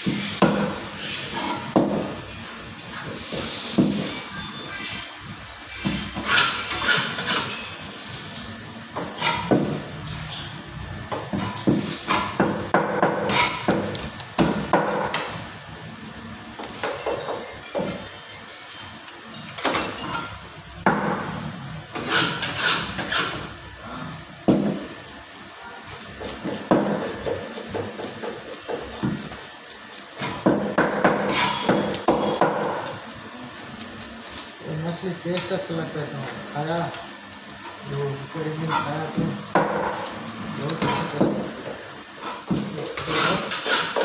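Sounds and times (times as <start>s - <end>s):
knife chopping on wooden board: 26.2s - 29.3s, 30.2s - 32.9s.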